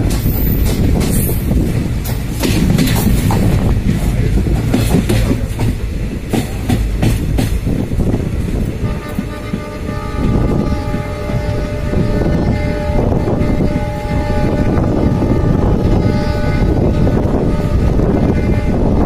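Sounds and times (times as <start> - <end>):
wheels clattering over rail joints: 0.0 - 9.8
train rumbling at speed: 0.0 - 19.0.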